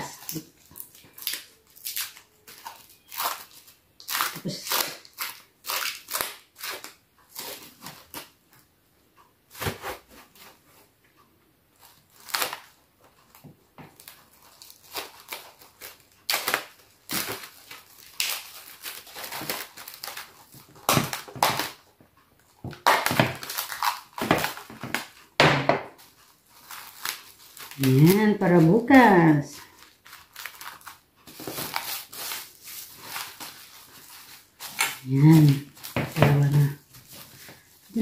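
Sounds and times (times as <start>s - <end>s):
plastic cling wrap crinkling: 0.0s - 8.7s, 11.7s - 38.0s.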